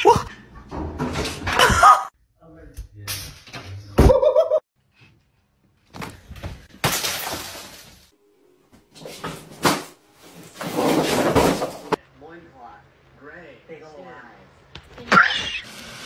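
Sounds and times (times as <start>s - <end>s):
object shattering crash: 6.8s - 8.1s, 9.6s - 12.0s.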